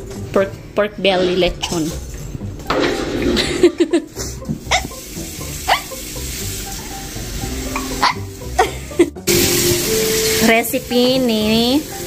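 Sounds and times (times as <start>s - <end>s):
soft background music: 0.0s - 12.0s
pork sizzling: 2.4s - 12.0s.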